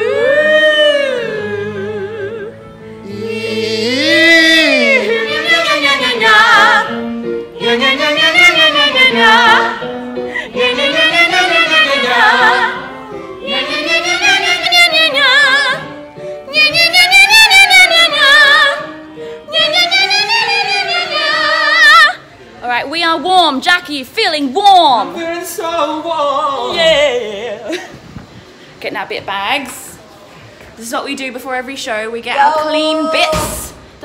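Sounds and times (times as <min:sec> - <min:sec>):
singers vocal warm-up: 0:00.0 - 0:22.5.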